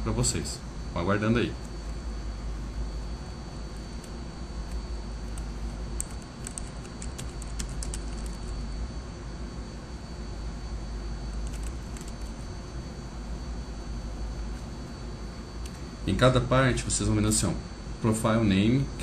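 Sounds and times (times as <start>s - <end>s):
steady low hum: 0.0s - 19.0s
computer keyboard typing: 5.2s - 8.5s, 11.3s - 12.4s.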